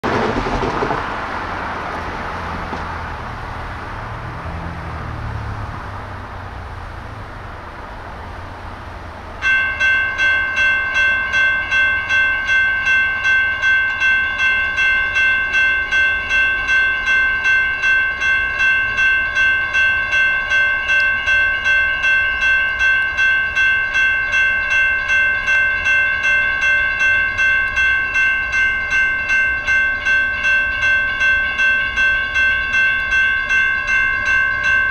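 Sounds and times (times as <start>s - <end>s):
rush of background noise: 0.0s - 9.5s
crossing signal bells ringing: 1.6s - 34.9s.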